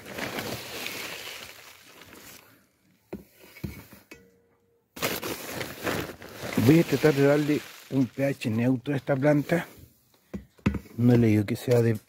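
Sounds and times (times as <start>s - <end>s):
vermiculite pouring hiss: 0.0s - 2.5s, 6.4s - 9.8s
plastic sack rustling: 0.0s - 2.8s, 5.0s - 9.7s.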